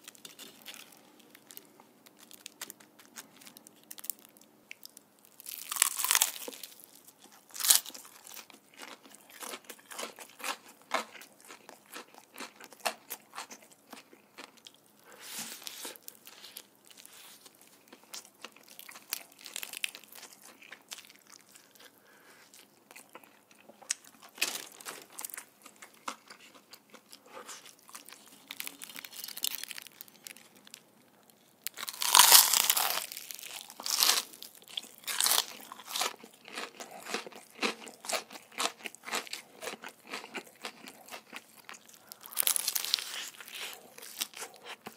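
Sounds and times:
crunching fried chicken: 0:00.0 - 0:44.9.

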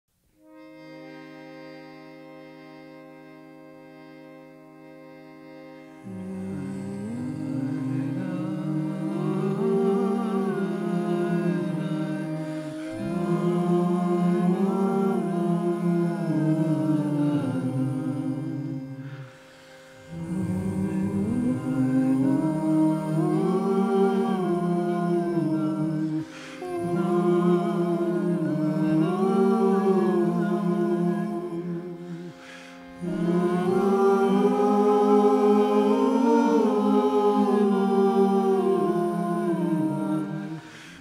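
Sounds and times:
voices singing wordless melody: 0:04.8 - 0:41.0
low drone note: 0:20.0 - 0:37.2.

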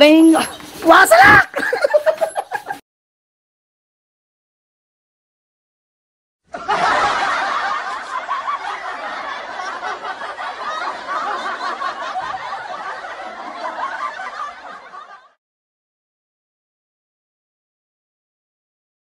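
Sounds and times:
crowd laughing: 0:00.4 - 0:02.8, 0:06.5 - 0:15.4.

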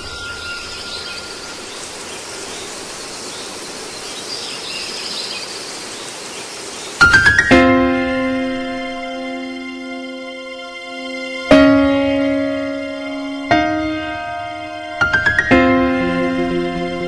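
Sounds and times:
faint high calls: 0:00.0 - 0:04.4
piano music: 0:07.0 - 0:17.0.

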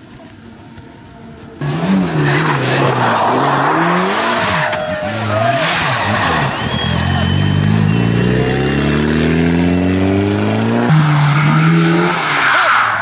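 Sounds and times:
car engine accelerating: 0:01.6 - 0:13.0
steady car engine note: 0:03.8 - 0:12.2.

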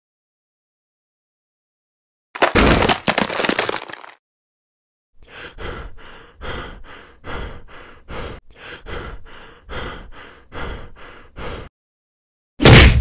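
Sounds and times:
wall being smashed through: 0:02.4 - 0:04.2
heavy rhythmic panting: 0:05.2 - 0:11.7.

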